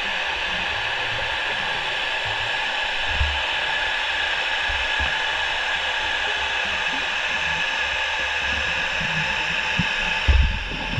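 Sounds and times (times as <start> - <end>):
underwater hiss: 0.0 - 10.9.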